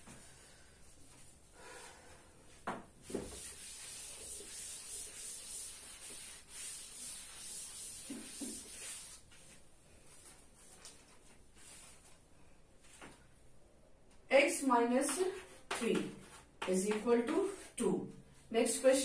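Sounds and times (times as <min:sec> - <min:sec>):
duster scraping chalkboard: 0:03.0 - 0:09.5.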